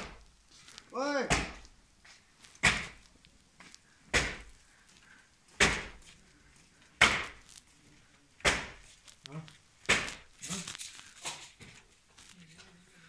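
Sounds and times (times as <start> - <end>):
sharp knocks: 1.3 - 1.6.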